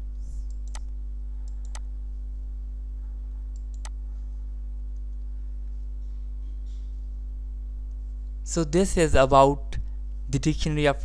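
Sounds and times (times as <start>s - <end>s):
low electrical hum: 0.0s - 11.0s
computer mouse clicking: 0.4s - 0.9s, 1.5s - 1.9s, 3.5s - 4.0s.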